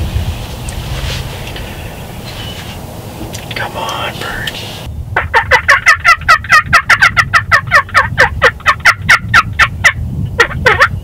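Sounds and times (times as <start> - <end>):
turkey yelping: 5.2 - 11.0.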